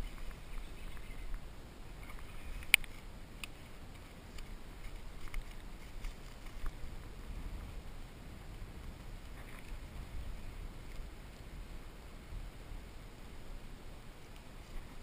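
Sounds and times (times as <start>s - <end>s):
wind rumble on microphone: 0.0s - 15.0s
faint ticks: 2.1s - 6.8s.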